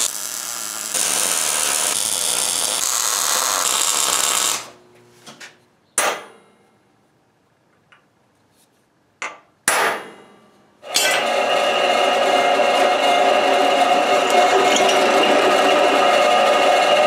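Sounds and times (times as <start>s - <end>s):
hammer striking metal punch: 6.0s - 6.6s, 9.2s - 11.3s
drill press running: 11.2s - 17.0s.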